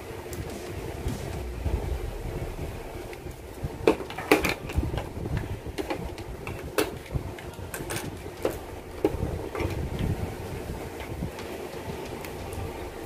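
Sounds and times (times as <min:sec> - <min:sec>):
low rumble of handling noise: 0:00.3 - 0:11.3.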